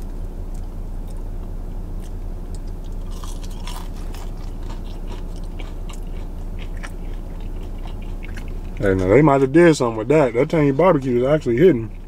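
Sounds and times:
steady low hum: 0.0s - 12.0s
person chewing fries: 0.4s - 9.8s.

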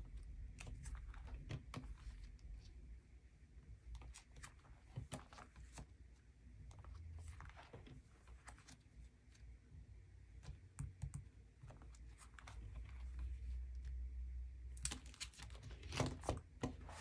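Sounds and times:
plastic sleeve pages turning: 14.8s - 17.0s.

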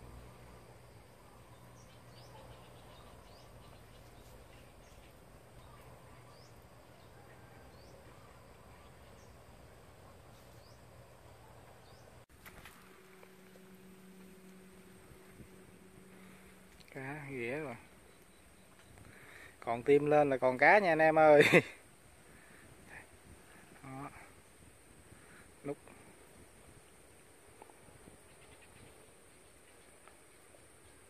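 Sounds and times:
faint steady hiss: 0.0s - 31.0s
low steady hum: 0.0s - 31.0s.

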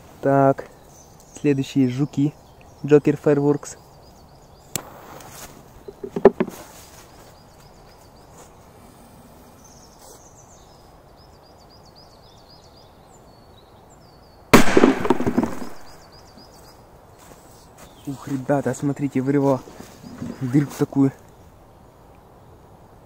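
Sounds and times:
firecracker bang in metal canister: 14.6s - 15.9s
sharp knock: 14.6s - 16.0s.

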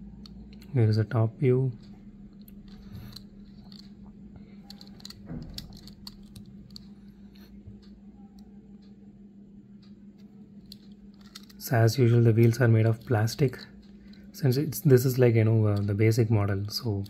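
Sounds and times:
steady low hum: 0.0s - 17.0s
fingers handling toy car: 4.6s - 6.9s, 10.6s - 11.6s.

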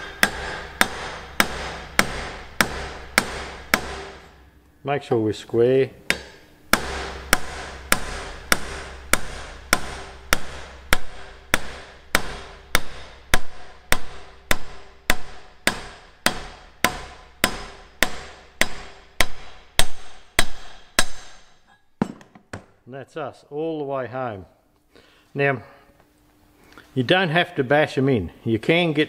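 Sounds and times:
hammer striking steel drift: 0.0s - 4.4s, 6.1s - 22.2s.

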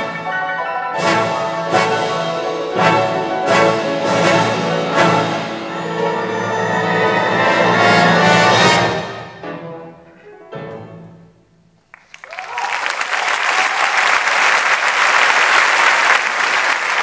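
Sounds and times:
orchestra playing chords: 0.0s - 11.4s
audience applause: 11.9s - 17.0s.

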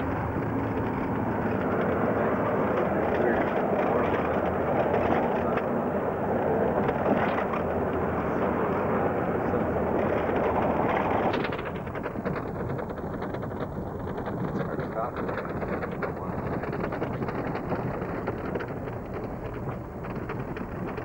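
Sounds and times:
vehicle road noise from inside: 0.0s - 12.0s
wind rushing over microphone: 0.0s - 21.0s.

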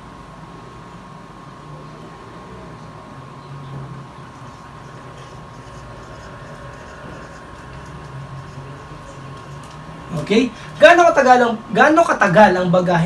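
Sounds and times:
steady low hum: 0.0s - 13.0s
thin steady whine: 0.0s - 13.0s
marker scratching on chart: 4.2s - 9.8s.

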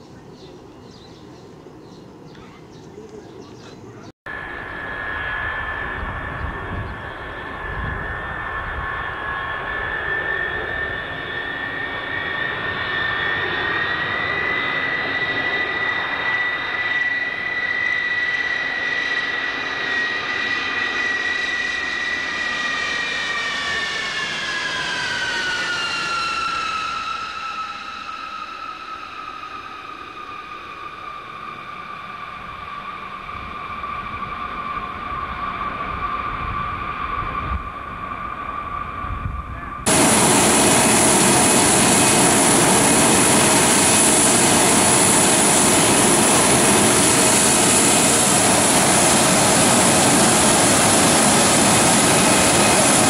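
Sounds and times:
jet aircraft passing overhead: 0.0s - 53.0s.

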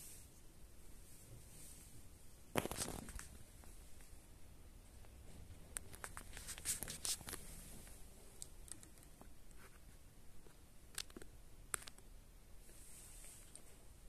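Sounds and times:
faint small clicks: 8.4s - 9.3s.

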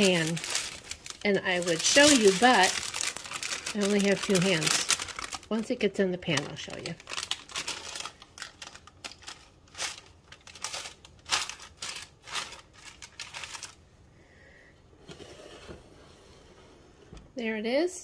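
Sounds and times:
parchment paper rustling: 0.0s - 13.8s.

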